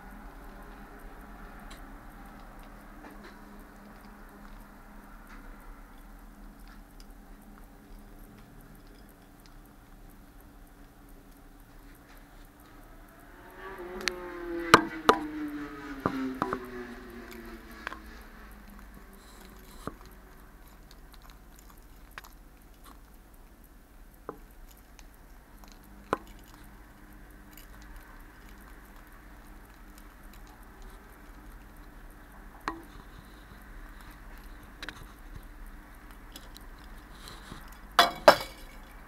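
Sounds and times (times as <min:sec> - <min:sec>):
low tone sliding downward: 0:12.6 - 0:19.7.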